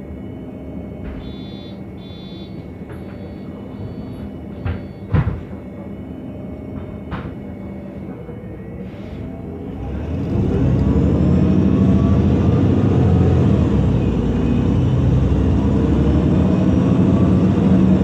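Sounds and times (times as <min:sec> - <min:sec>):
bus engine running: 0:00.0 - 0:18.0
short high beeps: 0:01.2 - 0:05.1
knocks: 0:04.6 - 0:05.5.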